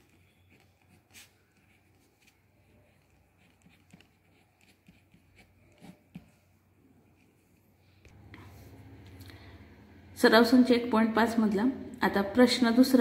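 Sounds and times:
pen writing on paper: 0.0s - 6.4s.

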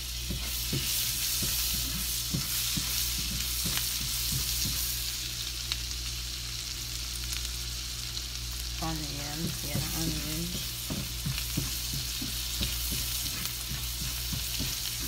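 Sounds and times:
onions sizzling in butter: 0.0s - 15.0s
spoon stirring and scraping: 9.4s - 15.0s.

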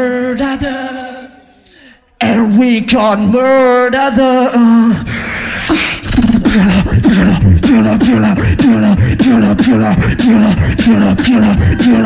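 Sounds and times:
beatboxing through a microphone: 3.7s - 12.0s.

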